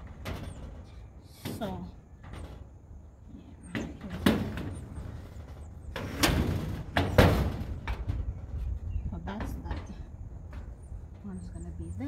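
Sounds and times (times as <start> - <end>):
metal shed door rattling: 0.0 - 11.4.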